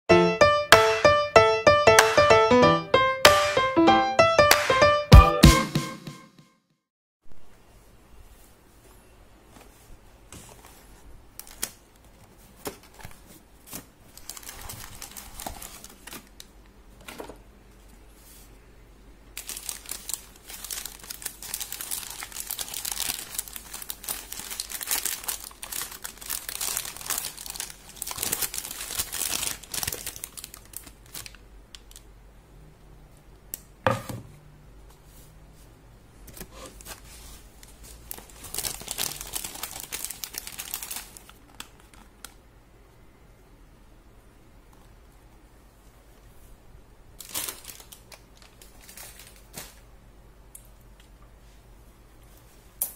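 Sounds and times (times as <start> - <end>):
paper wrapper crinkling: 10.5 - 16.5, 19.4 - 32.0, 36.4 - 42.4, 47.2 - 49.8.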